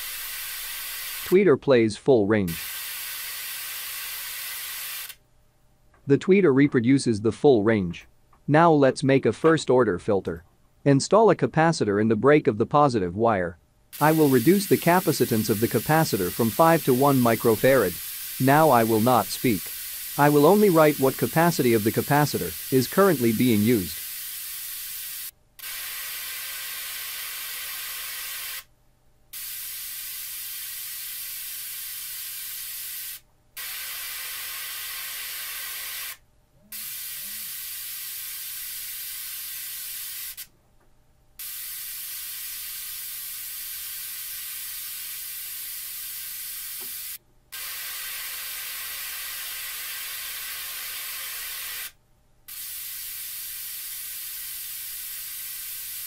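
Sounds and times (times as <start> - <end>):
tweeter playing hiss noise: 0.0 - 1.4, 2.5 - 5.2, 14.0 - 28.7, 29.4 - 40.5, 41.4 - 56.0.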